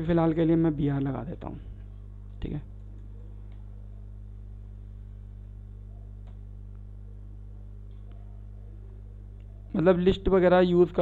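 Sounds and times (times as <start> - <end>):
electrical mains hum: 0.0 - 11.0
faint clicks: 6.2 - 6.9.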